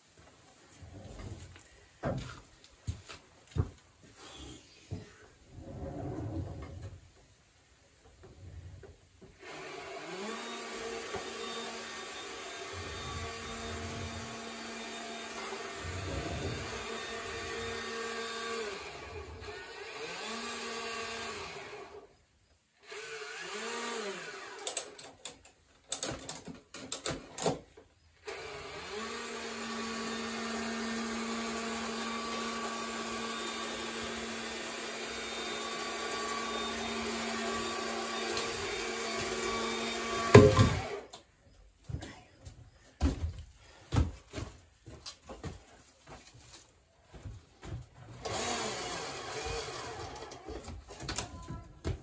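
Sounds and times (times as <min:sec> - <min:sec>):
electric hoist motor whining: 0:09.5 - 0:22.0, 0:28.3 - 0:41.2, 0:48.2 - 0:50.6
loud clunk: 0:40.3 - 0:40.9.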